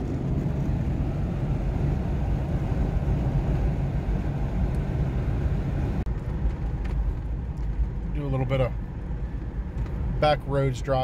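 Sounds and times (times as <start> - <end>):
road and wind noise in car: 0.0 - 11.0.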